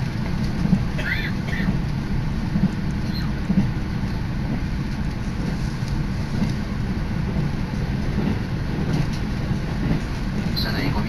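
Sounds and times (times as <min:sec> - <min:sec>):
electric train rumbling: 0:00.0 - 0:11.0.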